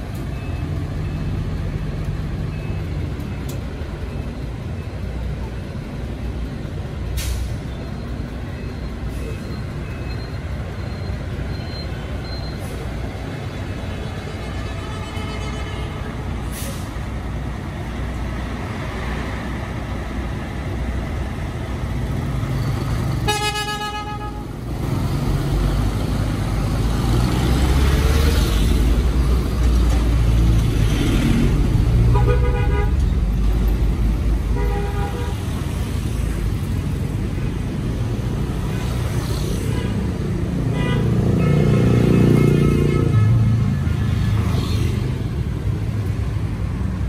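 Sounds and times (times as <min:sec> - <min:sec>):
street traffic engine rumble: 0:00.0 - 0:47.0
vehicle horn honking: 0:14.2 - 0:16.1, 0:23.2 - 0:24.5, 0:32.1 - 0:33.0
truck passing close by: 0:24.5 - 0:32.2.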